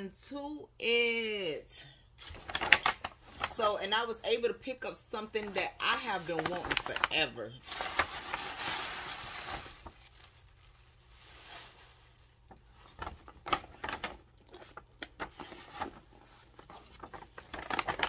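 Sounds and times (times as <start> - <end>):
packaging rustling and crinkling: 2.2 - 3.8, 5.8 - 18.0.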